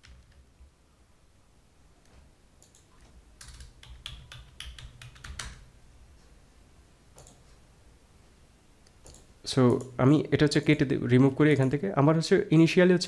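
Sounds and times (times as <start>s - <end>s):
keyboard typing: 0.0s - 0.5s, 2.6s - 5.7s, 7.1s - 7.6s, 8.9s - 10.0s.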